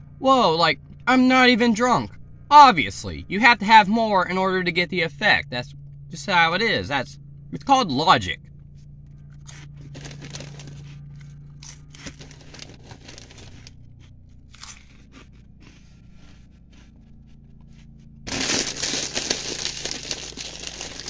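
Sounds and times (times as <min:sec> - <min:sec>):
steady low hum: 0:00.0 - 0:21.0
chewing and crunching snacks: 0:09.0 - 0:21.0
snack bag crinkling: 0:09.3 - 0:17.4, 0:18.3 - 0:21.0.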